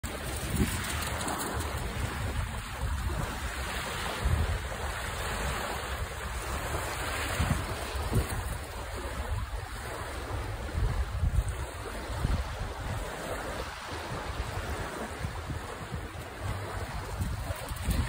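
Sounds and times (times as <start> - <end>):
small waves on shore: 0.0 - 18.0
wind buffeting microphone: 0.0 - 18.0.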